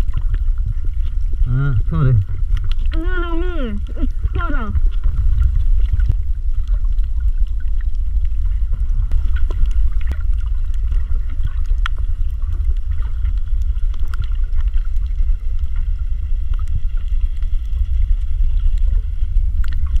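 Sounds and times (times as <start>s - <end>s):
faint clicks and crackles: 0.0s - 20.0s
underwater rumble of moving water: 0.0s - 20.0s.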